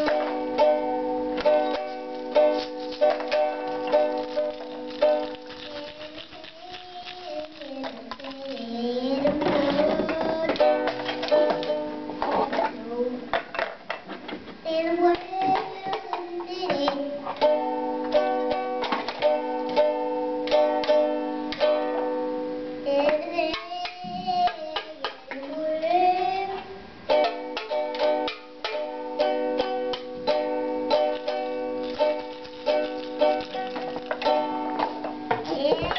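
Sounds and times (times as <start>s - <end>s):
ukulele strumming chords: 0.0s - 8.2s, 9.4s - 12.9s, 15.2s - 25.4s, 27.0s - 35.9s
child singing: 1.5s - 13.4s, 14.6s - 18.5s, 22.8s - 28.1s, 35.3s - 35.9s.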